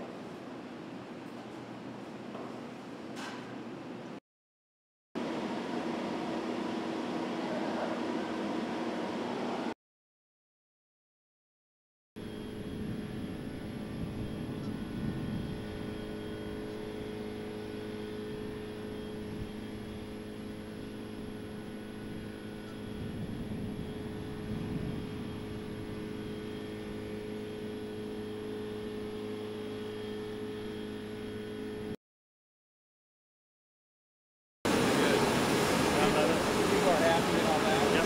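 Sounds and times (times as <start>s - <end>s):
industrial machinery hum: 5.2s - 9.8s, 12.2s - 32.0s, 34.7s - 38.0s.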